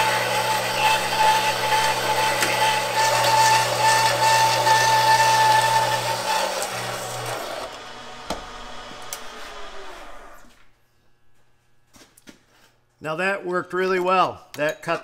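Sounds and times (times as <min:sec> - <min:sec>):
hole saw grinding through steel: 0:00.0 - 0:08.3
drill press winding down: 0:00.0 - 0:10.7.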